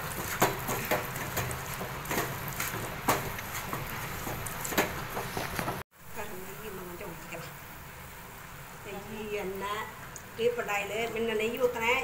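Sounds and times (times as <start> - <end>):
spatula scraping a pan: 0.0 - 5.8.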